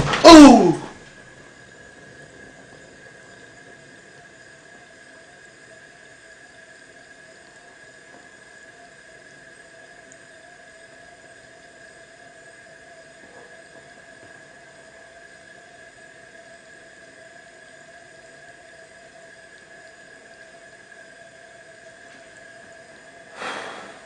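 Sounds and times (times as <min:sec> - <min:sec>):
thin steady whine: 0:00.0 - 0:24.0
gas burner hissing: 0:19.6 - 0:24.0.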